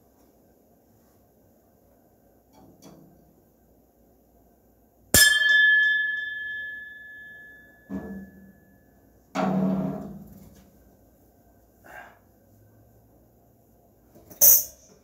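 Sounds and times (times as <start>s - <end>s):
metal bell strike ringing: 5.2s - 8.9s.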